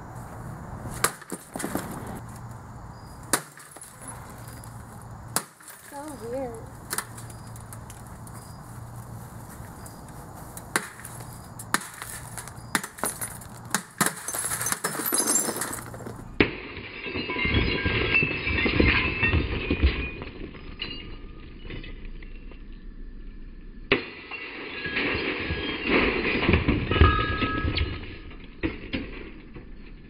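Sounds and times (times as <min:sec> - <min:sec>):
glass shattering and crunching: 0:03.2 - 0:08.6, 0:10.7 - 0:23.0, 0:23.9 - 0:30.0
pitchfork striking glass screen: 0:10.7 - 0:16.6.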